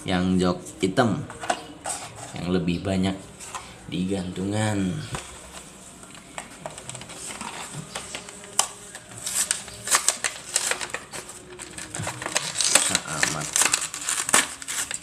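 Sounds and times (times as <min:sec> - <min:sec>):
plastic packaging crackling: 0:04.6 - 0:15.0.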